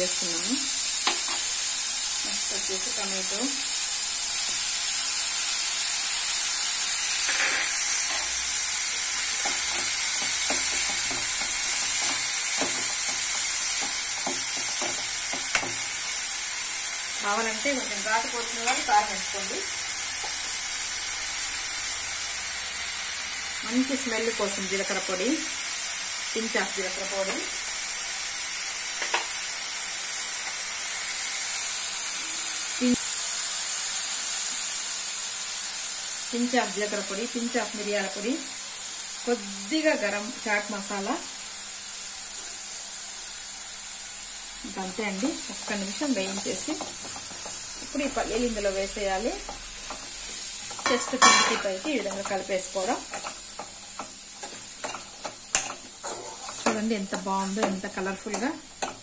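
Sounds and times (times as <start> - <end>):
vegetables sizzling in oil: 0.0 - 59.0
steel spoon scraping and tapping pan: 7.2 - 8.4, 9.3 - 15.8, 49.4 - 59.0.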